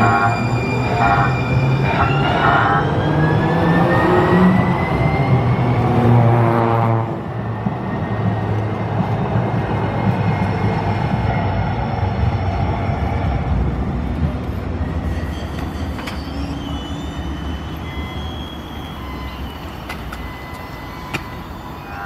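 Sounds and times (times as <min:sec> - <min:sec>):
short warning tones: 0:00.0 - 0:02.9
train wheel and running noise: 0:00.0 - 0:06.2, 0:07.2 - 0:22.0.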